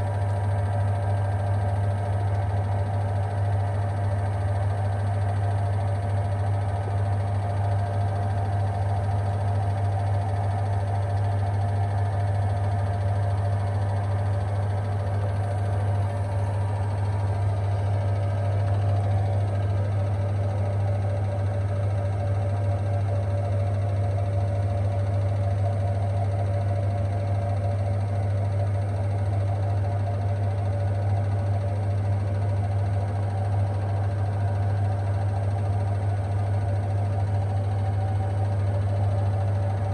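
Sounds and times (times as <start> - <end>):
washing machine spinning: 0.0 - 39.9.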